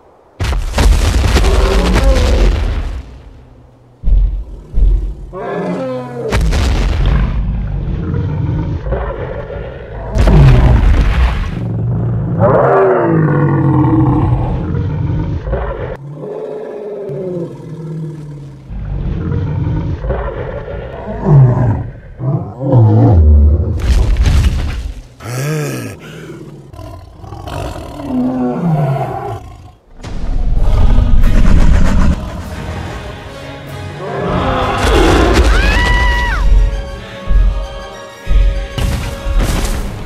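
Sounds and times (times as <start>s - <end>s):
deep rumble: 29.9s - 32.9s.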